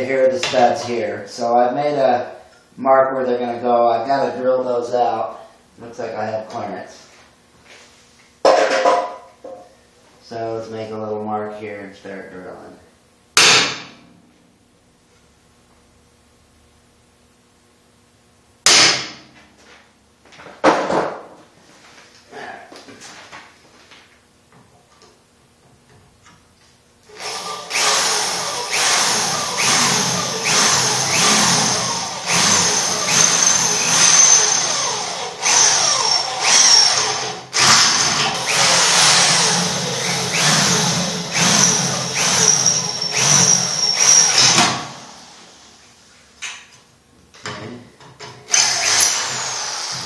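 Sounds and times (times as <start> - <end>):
electric drill cutting metal: 27.1 - 45.4, 48.5 - 50.0.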